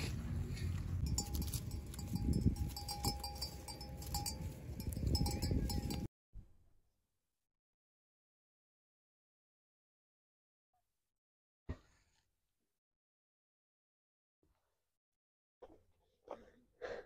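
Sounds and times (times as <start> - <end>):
animal bells ringing and clinking: 0.5 - 6.1.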